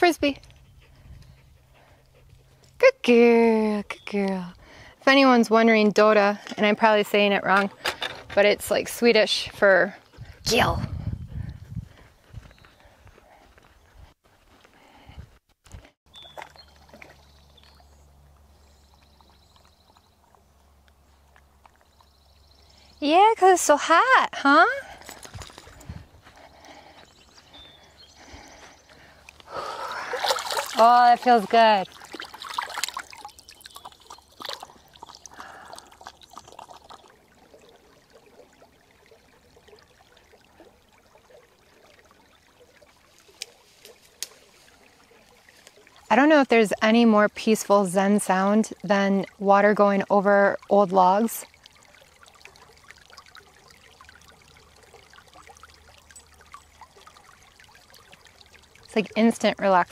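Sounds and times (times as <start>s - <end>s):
creek trickling and gurgling: 0.0s - 59.9s
dog wading in shallow water: 16.1s - 22.6s, 24.8s - 46.2s, 49.2s - 59.8s
water splashed by hand: 29.7s - 46.0s.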